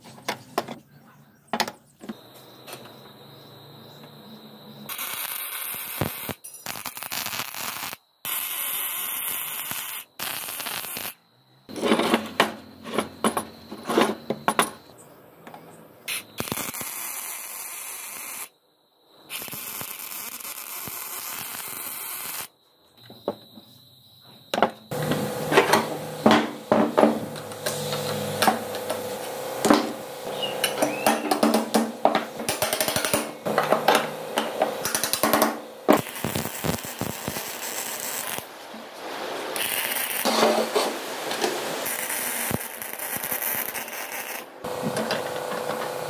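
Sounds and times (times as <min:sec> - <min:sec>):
welder arc crackling and hissing: 0:04.9 - 0:11.2, 0:16.1 - 0:18.5, 0:19.3 - 0:22.5, 0:24.9 - 0:46.0.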